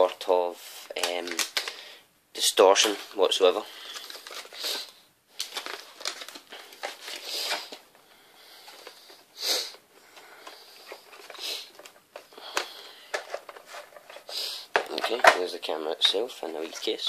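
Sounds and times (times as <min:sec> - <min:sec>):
packaging crinkling and rustling: 0:01.0 - 0:01.8, 0:02.8 - 0:07.9
scraping rustles: 0:13.1 - 0:15.5.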